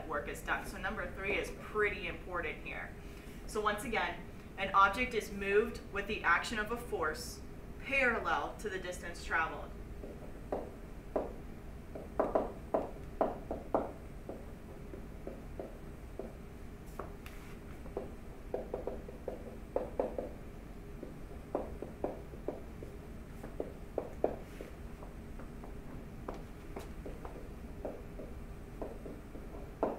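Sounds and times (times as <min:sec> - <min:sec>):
faint steady hum: 0:00.0 - 0:29.9
stylus tapping and scraping on tablet: 0:12.0 - 0:20.4.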